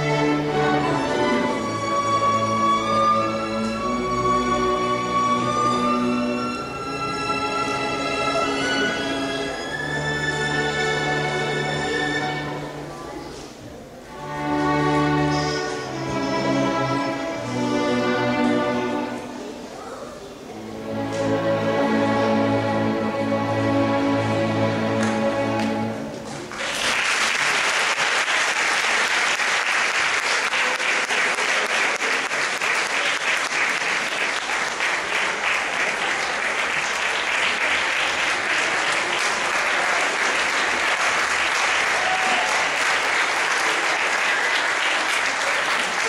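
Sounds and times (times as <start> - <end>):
orchestra holding chord: 14.1 - 19.7
audience applauding: 26.3 - 46.0.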